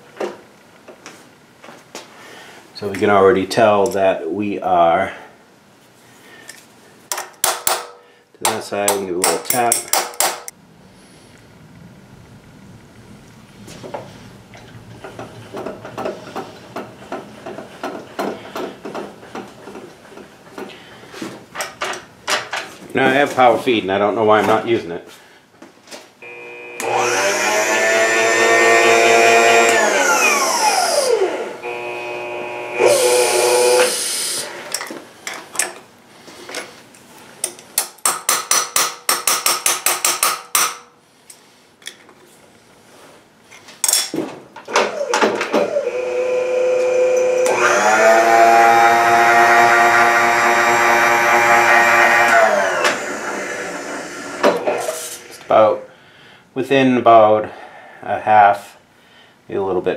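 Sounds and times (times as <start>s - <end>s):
power feed motor whining: 26.2s - 34.7s, 44.8s - 55.5s.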